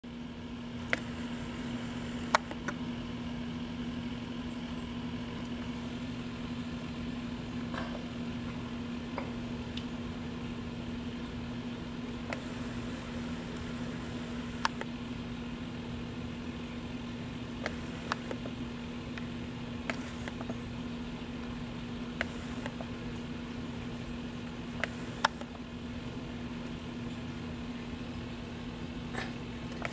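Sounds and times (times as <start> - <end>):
low mechanical hum: 0.0 - 29.9
sharp clicks: 2.0 - 2.8, 12.3 - 14.9, 17.5 - 18.5, 24.6 - 25.6.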